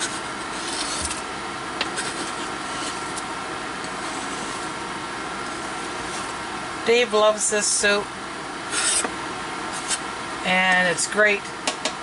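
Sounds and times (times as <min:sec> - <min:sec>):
knife scraping a cutting board: 0:00.0 - 0:01.2, 0:01.9 - 0:03.2, 0:03.9 - 0:04.7, 0:08.7 - 0:09.1, 0:09.7 - 0:10.0
cooktop fan noise: 0:00.0 - 0:12.0
faint steady whine: 0:00.0 - 0:12.0.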